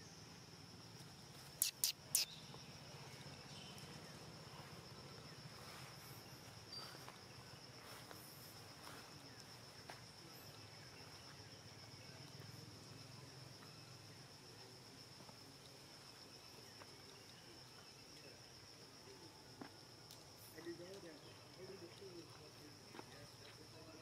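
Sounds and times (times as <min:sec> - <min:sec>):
insect trilling: 0:01.4 - 0:07.7
sharp high chirps: 0:01.6 - 0:02.6.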